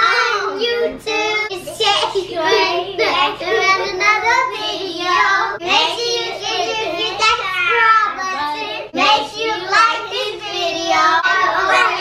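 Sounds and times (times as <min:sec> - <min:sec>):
young children singing: 0:00.0 - 0:12.0.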